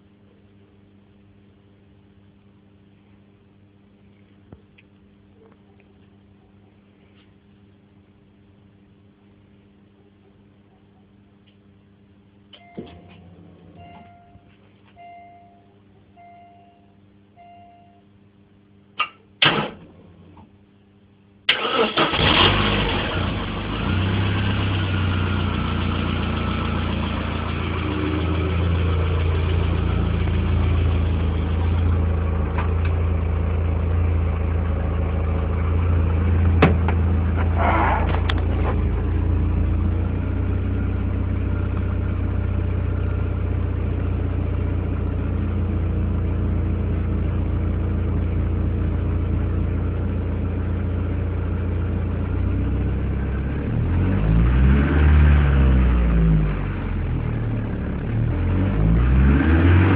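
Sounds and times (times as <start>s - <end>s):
short beeps: 13.8s - 18.1s
car engine cranking and idling: 21.5s - 59.9s.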